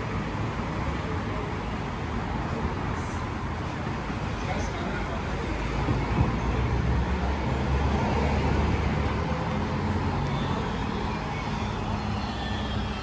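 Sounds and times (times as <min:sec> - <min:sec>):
road traffic: 0:00.0 - 0:13.0
vehicle engine running nearby: 0:00.0 - 0:13.0.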